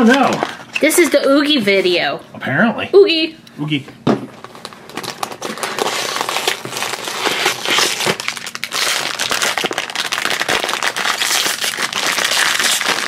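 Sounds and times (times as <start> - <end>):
foil bag crinkling: 4.3 - 13.0.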